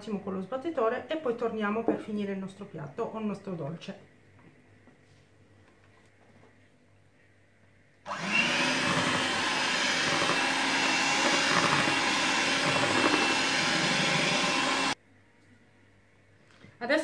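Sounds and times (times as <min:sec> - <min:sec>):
electric hand mixer whirring: 0:08.1 - 0:15.0
beaters whisking in glass bowl: 0:08.2 - 0:15.0.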